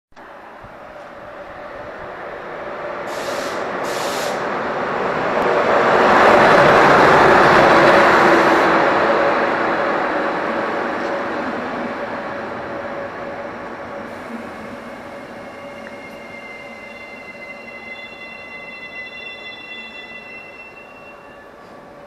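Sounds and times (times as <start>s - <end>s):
train rolling past: 0.2s - 22.0s
short hisses: 3.1s - 4.5s.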